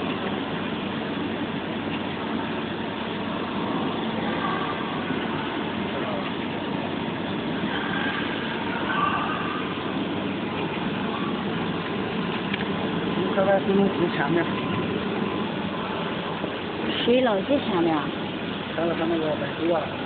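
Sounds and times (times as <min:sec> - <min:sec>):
mechanical running noise: 0:00.0 - 0:20.0
faint voices: 0:03.2 - 0:20.0.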